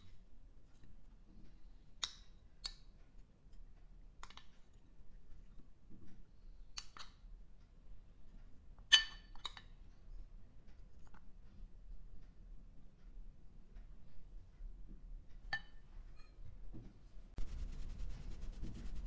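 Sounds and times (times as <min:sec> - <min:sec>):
metal spoon clinking on ceramic plate: 0:08.9 - 0:09.7.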